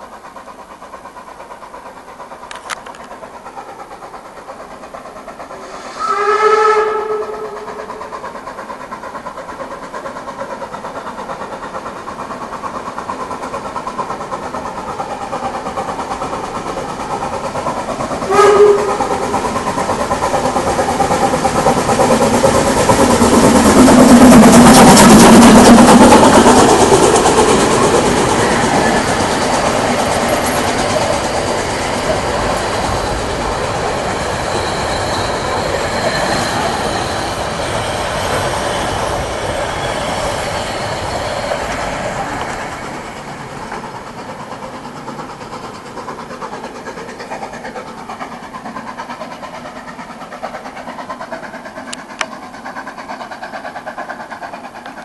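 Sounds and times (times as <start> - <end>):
steam locomotive exhaust beat: 0.0 - 55.0
steam whistle blasts: 5.7 - 8.1, 18.2 - 19.3.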